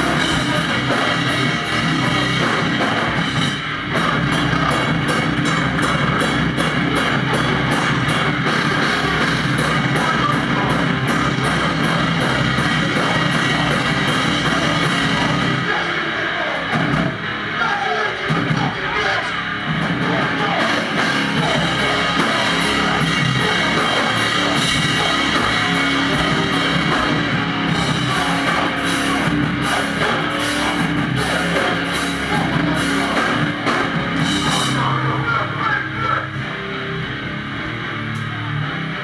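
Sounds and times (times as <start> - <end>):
pounding drum kit with cymbals: 0.0 - 35.4
vocals: 0.0 - 37.0
distorted electric guitar: 0.0 - 39.0.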